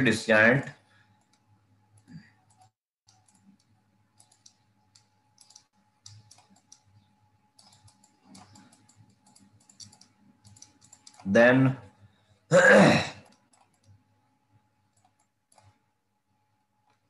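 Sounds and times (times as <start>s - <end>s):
faint mouse clicking: 1.2s - 11.3s, 13.2s - 14.0s, 14.9s - 15.8s.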